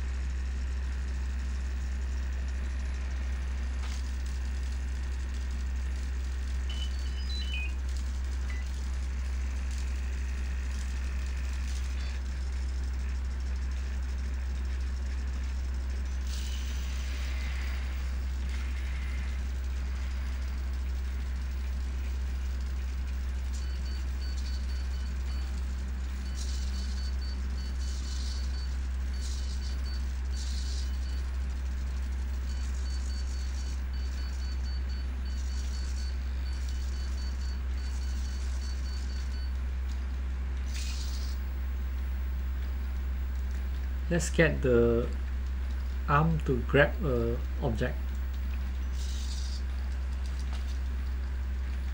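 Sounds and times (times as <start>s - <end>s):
steady low hum: 0.0s - 51.9s
servo motors whirring: 40.6s - 41.4s.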